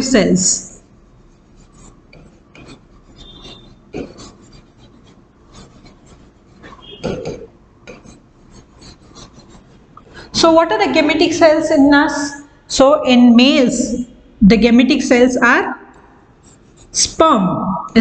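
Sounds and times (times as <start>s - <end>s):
pen scratching on writing board: 1.2s - 12.2s, 16.3s - 17.2s.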